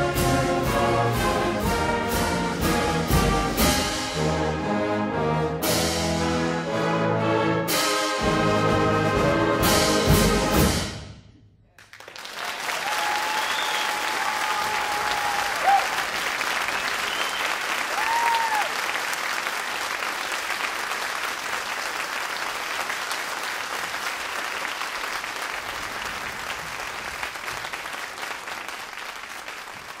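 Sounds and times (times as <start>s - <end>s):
crowd applauding: 11.8s - 30.0s.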